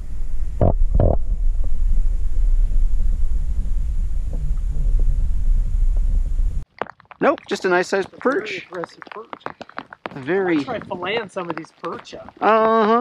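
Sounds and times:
muffled underwater rumble: 0:00.0 - 0:06.6.

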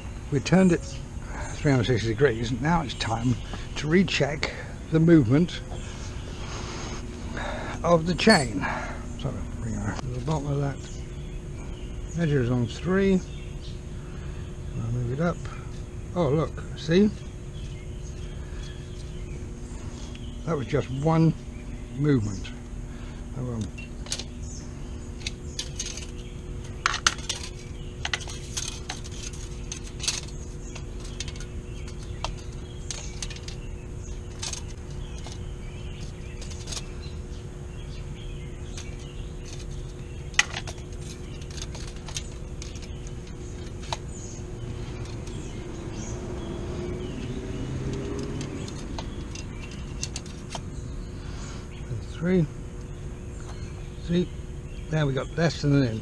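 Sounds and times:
steady background noise: 0:00.0 - 0:56.0
drive chain clicking and clinking: 0:25.2 - 0:37.1, 0:38.6 - 0:50.6.

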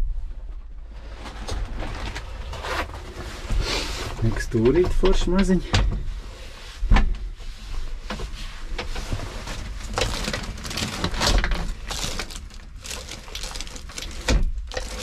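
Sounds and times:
plastic bag crinkling: 0:09.4 - 0:15.0.

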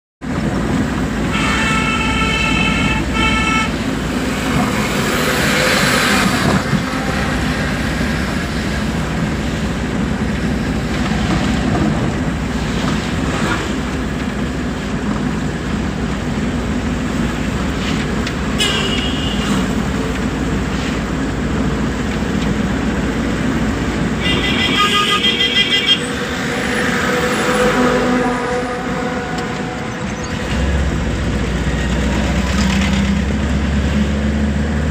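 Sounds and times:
truck engine and road noise: 0:00.2 - 0:34.9
truck horn toots: 0:01.3 - 0:03.9, 0:05.4 - 0:07.9, 0:18.5 - 0:19.8, 0:24.1 - 0:30.4.

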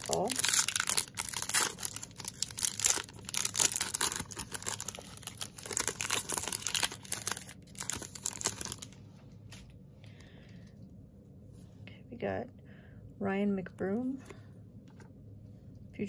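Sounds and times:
foil wrapper tearing and crinkling: 0:00.0 - 0:09.0.

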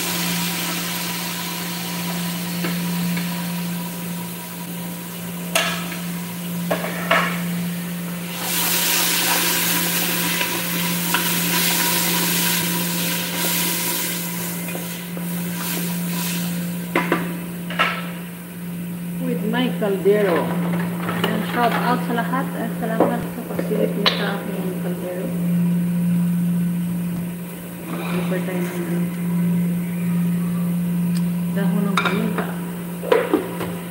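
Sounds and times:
food sizzling in a pot: 0:00.0 - 0:19.2
low hum: 0:09.2 - 0:33.9.

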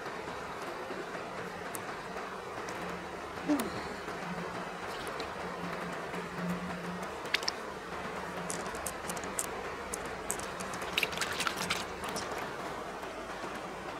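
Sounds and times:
stream running over rock: 0:04.7 - 0:05.6, 0:07.0 - 0:12.8
plastic beads clicking: 0:08.5 - 0:12.4.

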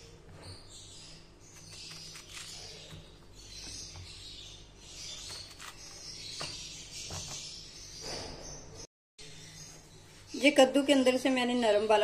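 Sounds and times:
knife scraping gourd core: 0:01.4 - 0:03.9, 0:05.0 - 0:06.4.

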